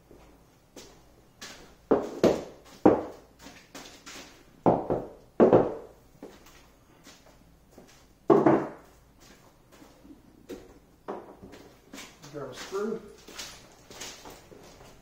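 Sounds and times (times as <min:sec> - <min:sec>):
wooden knocks and thuds: 0:01.9 - 0:03.3, 0:04.6 - 0:05.9, 0:08.3 - 0:08.9, 0:10.5 - 0:11.6.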